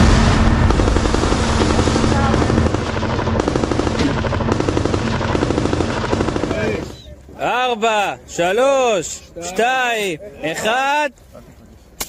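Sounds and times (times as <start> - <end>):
sharp cracks: 0.0 - 7.0
fast continuous rattle: 0.0 - 7.1
tank engine low drone: 0.0 - 7.4.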